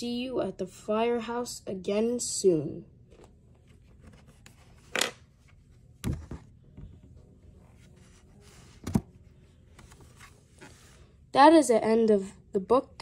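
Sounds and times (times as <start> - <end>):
book thumping on table: 6.0 - 6.9, 8.8 - 9.1.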